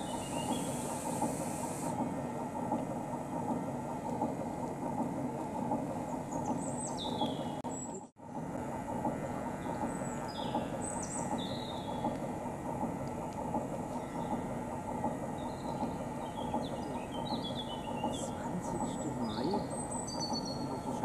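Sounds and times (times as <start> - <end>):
small birds chirping: 0.0 - 1.0, 6.2 - 8.0, 9.6 - 12.1, 15.4 - 21.0.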